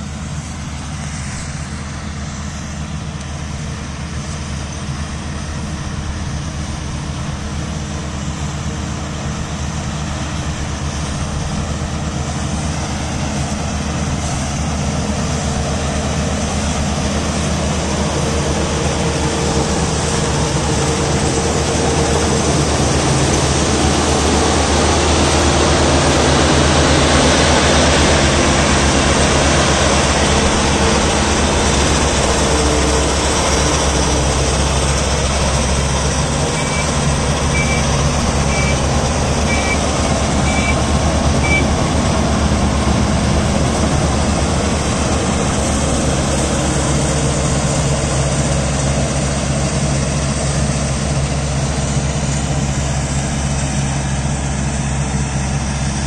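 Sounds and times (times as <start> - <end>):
combine harvester running: 0.0 - 56.0
faint high beep: 36.6 - 41.7.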